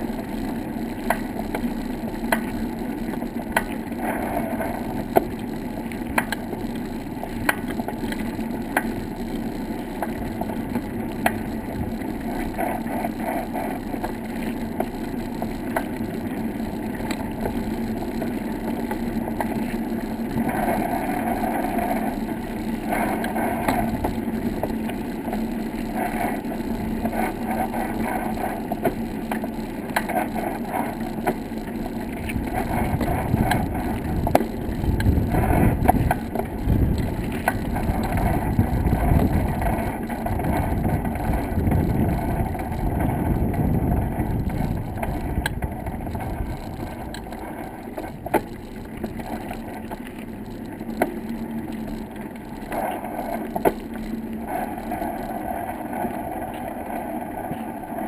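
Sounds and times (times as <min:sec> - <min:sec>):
bicycle rolling on wooden boardwalk: 0:00.0 - 0:58.0.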